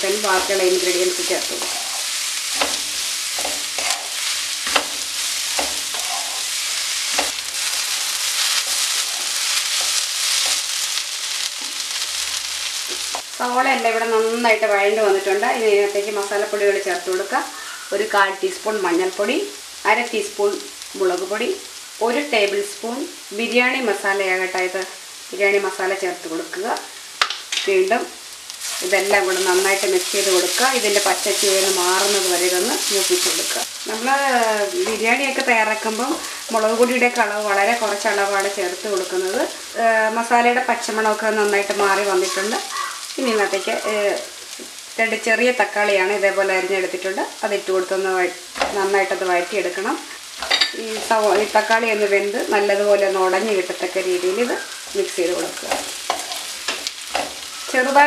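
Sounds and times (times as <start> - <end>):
onions sizzling in a pan: 0.0 - 58.0
spatula stirring: 0.2 - 13.3, 54.5 - 58.0.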